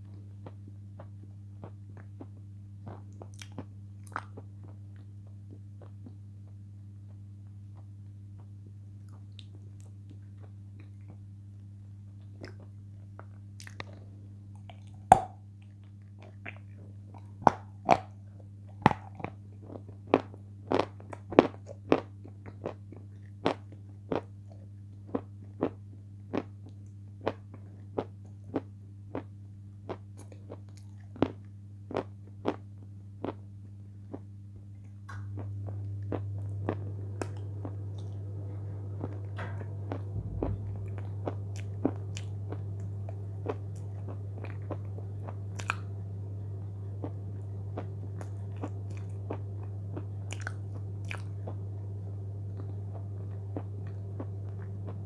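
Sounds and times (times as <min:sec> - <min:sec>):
low steady hum: 0:00.0 - 0:55.0
chip crunching: 0:47.0 - 0:51.6.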